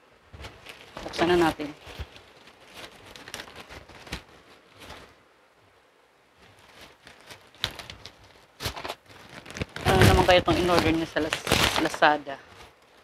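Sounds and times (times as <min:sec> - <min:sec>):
plastic pouch crinkling: 0:00.4 - 0:05.2, 0:06.4 - 0:13.0.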